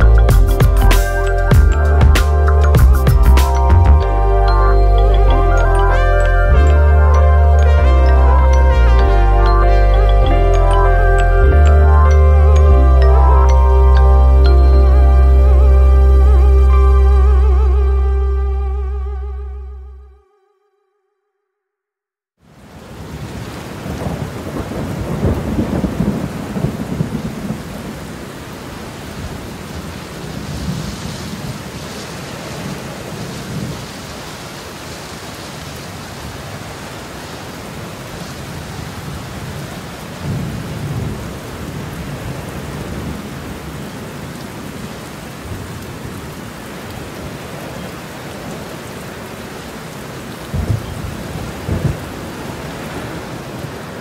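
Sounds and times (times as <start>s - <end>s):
strong gusty wind: 50.4s - 54.0s.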